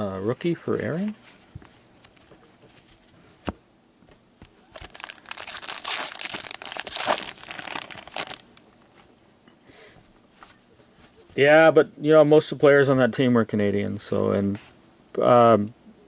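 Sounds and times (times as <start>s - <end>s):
wrapper crinkling and tearing: 4.7s - 8.6s.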